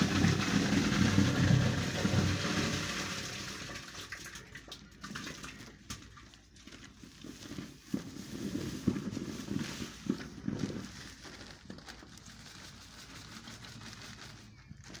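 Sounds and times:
plastic sacks rustling and crackling: 0:00.0 - 0:15.0.

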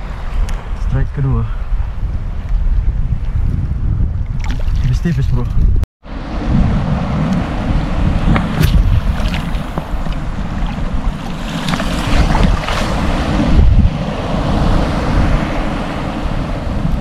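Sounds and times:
wind gusting on microphone: 0:00.0 - 0:17.0
small waves washing: 0:06.1 - 0:17.0.

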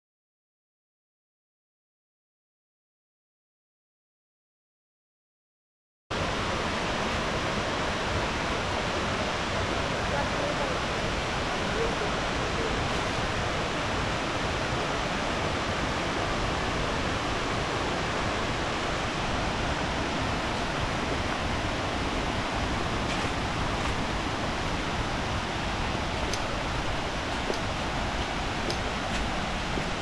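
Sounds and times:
waterfall rushing: 0:06.2 - 0:30.0.

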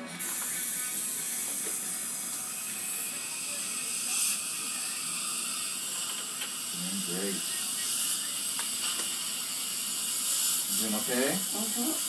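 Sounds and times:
dental suction hissing: 0:00.2 - 0:12.0.

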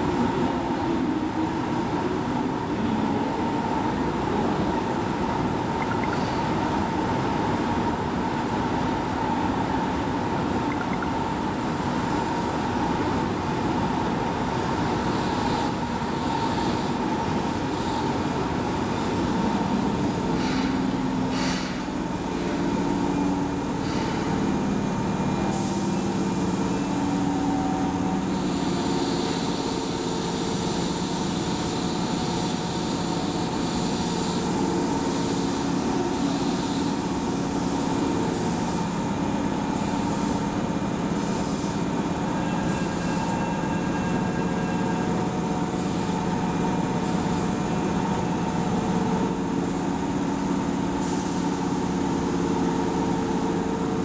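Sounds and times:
train equipment hum: 0:00.0 - 0:54.0
electric train pulling in and stopping: 0:11.0 - 0:54.0
air hiss: 0:20.3 - 0:21.9, 0:49.8 - 0:53.6.

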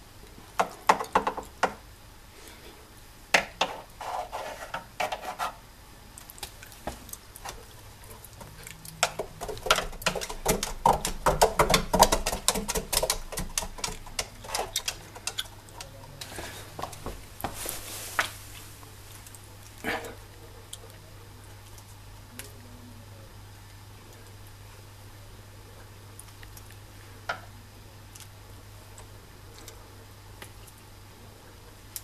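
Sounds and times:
paws clicking on a wheel: 0:07.4 - 0:16.1.

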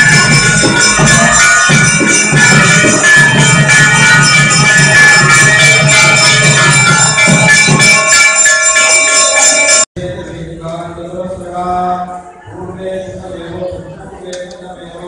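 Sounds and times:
low rhythmic beating: 0:00.0 - 0:09.8
temple bells ringing: 0:00.0 - 0:09.9.

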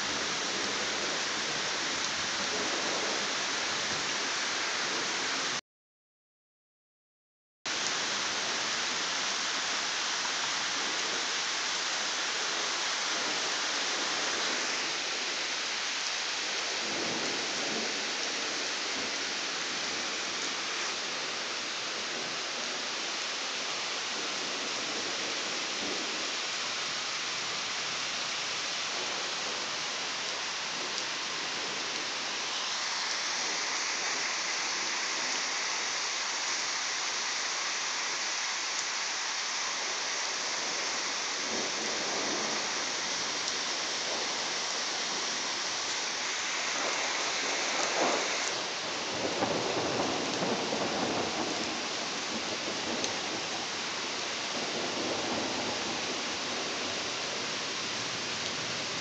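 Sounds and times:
steady rain falling: 0:00.0 - 0:05.6, 0:07.7 - 0:59.0
thunder rumbles: 0:39.8 - 0:53.8.

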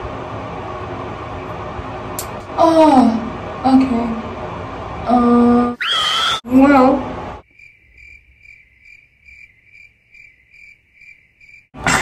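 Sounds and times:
short high squeal: 0:05.8 - 0:06.4
cricket chirping: 0:07.4 - 0:11.8.

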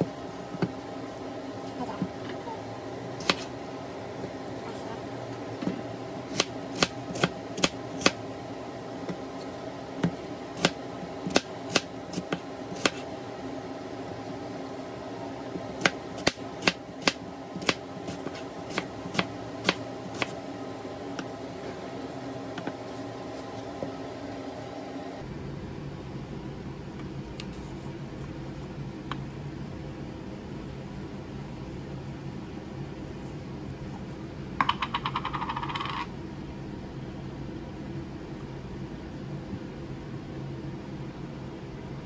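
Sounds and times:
steady background hum: 0:00.0 - 0:42.0.

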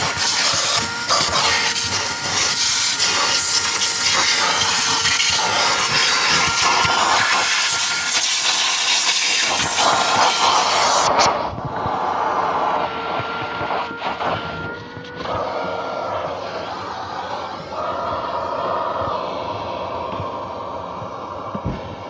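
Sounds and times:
vacuum cleaner running: 0:00.0 - 0:22.0
vacuum nozzle on carpet: 0:00.0 - 0:22.0.

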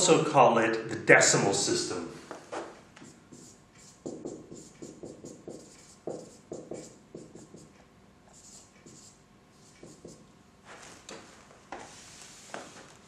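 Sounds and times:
marker squeaking on whiteboard: 0:02.6 - 0:10.2.

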